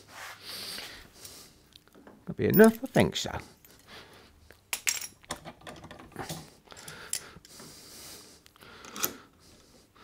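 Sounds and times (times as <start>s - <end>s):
wooden parts knocking and clicking: 4.8s - 6.4s.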